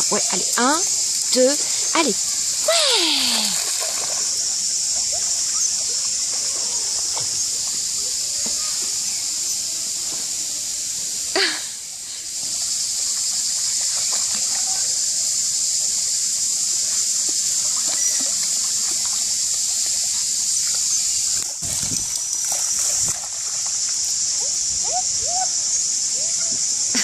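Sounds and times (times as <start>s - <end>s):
running water hiss: 0.0s - 27.0s
water splashing as dog wades: 3.3s - 7.7s, 21.5s - 25.3s.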